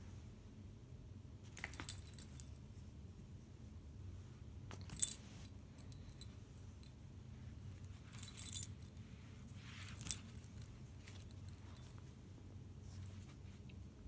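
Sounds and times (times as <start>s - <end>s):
dog collar tags jingling: 1.6s - 2.5s.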